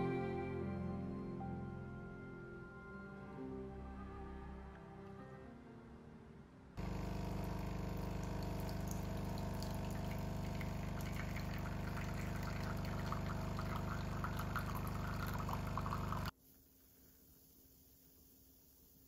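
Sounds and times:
coffee machine pump humming: 0:06.8 - 0:16.3
coffee splashing into cup: 0:06.8 - 0:16.3.

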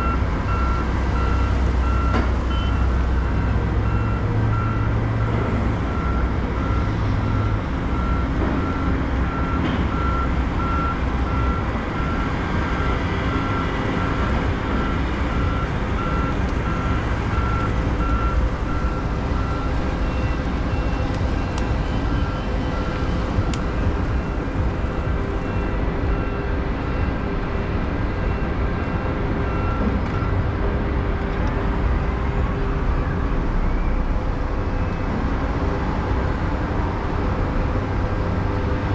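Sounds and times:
vehicle reversing alarm beeping: 0:00.0 - 0:30.9
traffic and engine rumble: 0:00.0 - 0:38.9.

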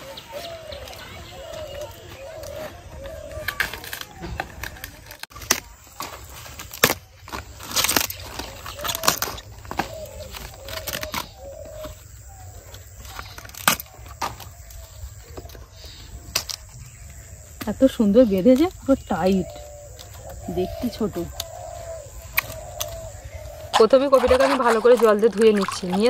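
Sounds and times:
cabbage leaves cracking and snapping: 0:01.7 - 0:12.0, 0:12.6 - 0:15.6, 0:16.3 - 0:16.8, 0:21.2 - 0:26.0.

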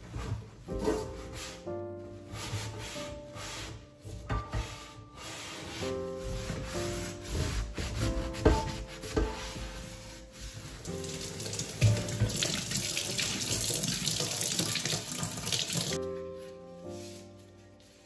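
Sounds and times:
water spraying from faucet onto metal rack: 0:10.8 - 0:16.0.

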